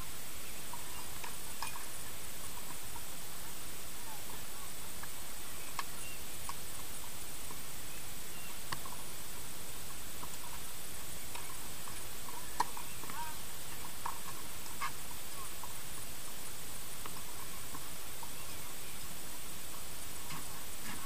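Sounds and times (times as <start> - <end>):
steady hiss: 0.0 - 21.0
bird chirps: 0.3 - 1.9, 5.4 - 6.3, 7.8 - 9.0, 10.4 - 14.4, 17.3 - 19.1.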